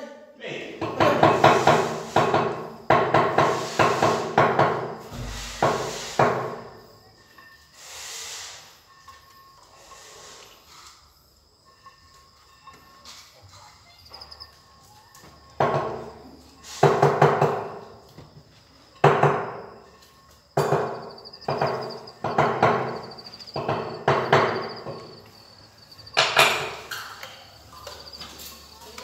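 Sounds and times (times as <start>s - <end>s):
hammer knocking floor tiles: 0.8s - 6.6s, 20.6s - 25.2s.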